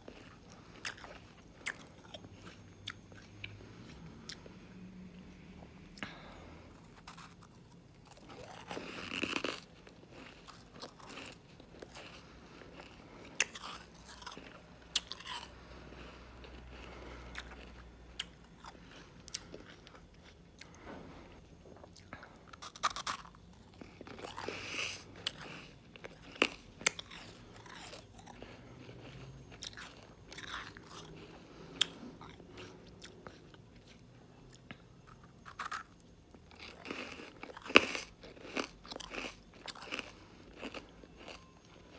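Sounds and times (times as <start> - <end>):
ice being crunched and chewed: 0.0 - 4.4, 6.9 - 41.9.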